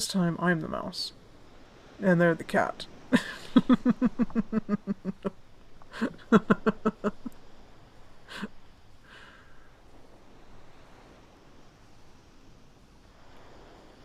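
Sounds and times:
person chuckling softly: 3.1 - 7.4, 8.2 - 9.3.

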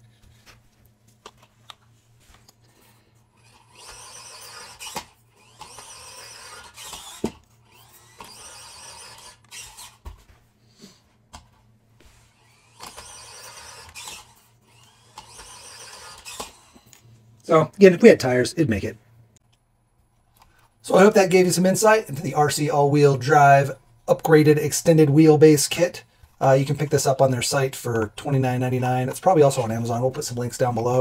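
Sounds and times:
toy car electric motor whining: 3.2 - 10.2, 12.1 - 17.0.

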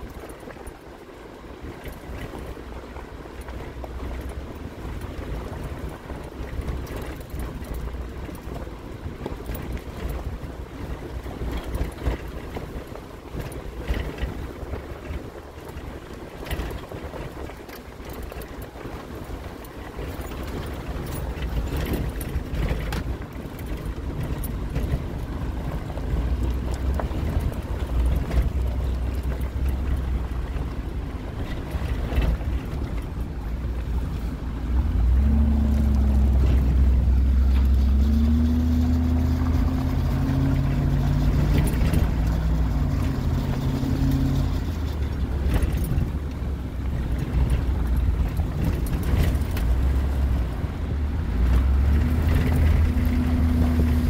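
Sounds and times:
vehicle rumbling over rocky track: 0.0 - 54.0
knocks and rattles: 34.8 - 50.6.

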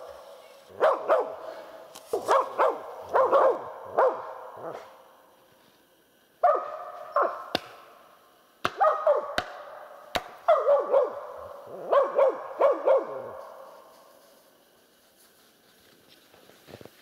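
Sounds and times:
dog barking: 0.7 - 1.5, 2.1 - 5.0, 6.4 - 7.5, 8.7 - 9.4, 10.4 - 13.6.

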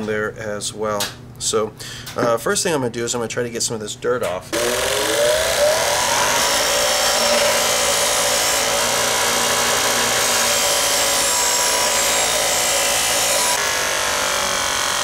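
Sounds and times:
bench grinder motor hum: 4.6 - 15.0.

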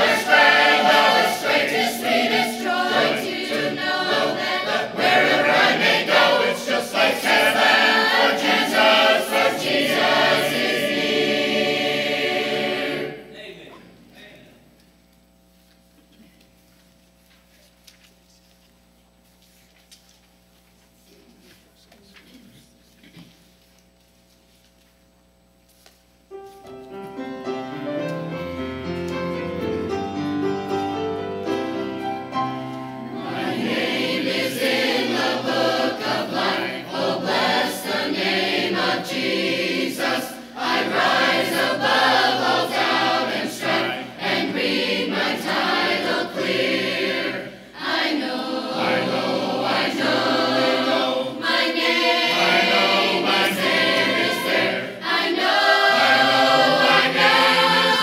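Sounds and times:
choir singing a hymn: 0.0 - 13.7, 28.2 - 58.0
grand piano: 26.3 - 35.5.

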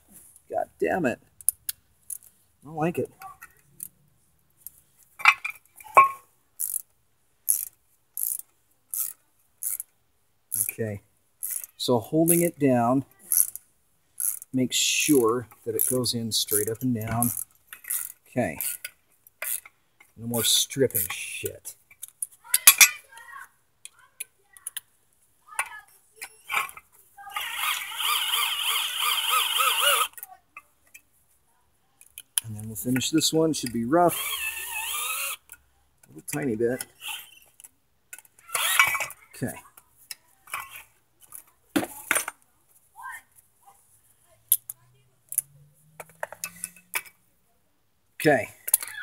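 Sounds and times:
ratchet wrench clicking: 6.6 - 6.9, 7.5 - 9.9, 11.4 - 12.4, 13.3 - 13.6, 14.2 - 14.5, 15.8 - 19.7, 27.3 - 30.3, 33.6 - 35.6, 38.1 - 39.0
cordless drill driving bolt: 27.4 - 30.2, 38.5 - 39.1.

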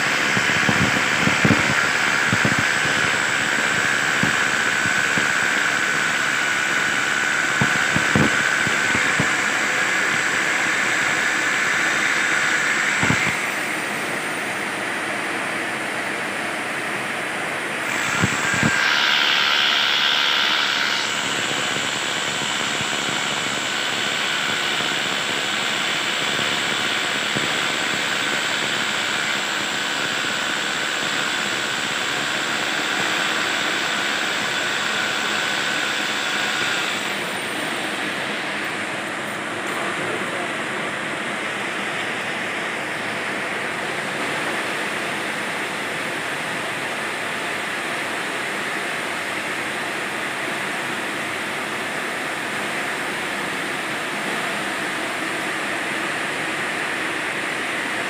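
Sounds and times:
hammer drill drilling into wall: 17.8 - 37.7.

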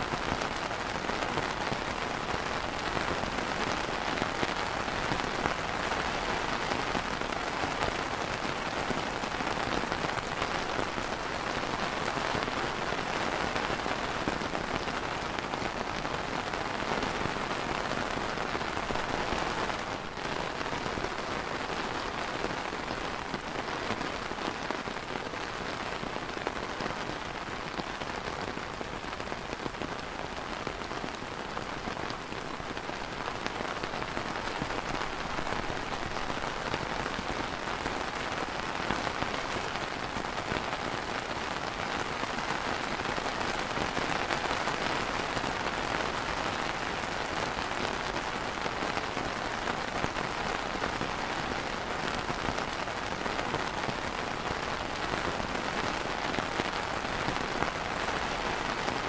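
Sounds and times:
rain on plastic umbrella: 0.0 - 59.0.

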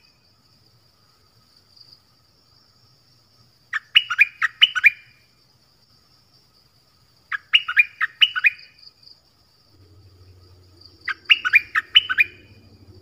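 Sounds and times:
bird singing sliding notes: 9.7 - 13.0.

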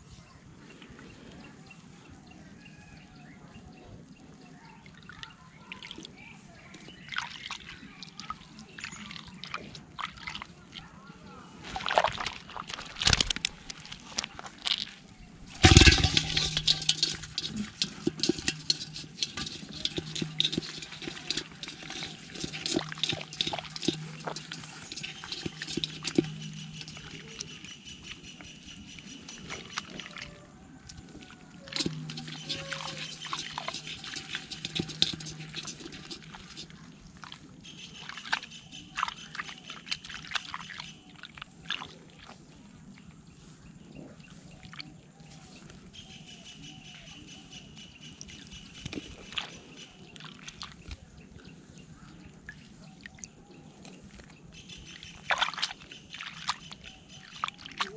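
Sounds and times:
hand splashing muddy water: 11.6 - 27.9, 29.2 - 42.4, 54.1 - 57.9.

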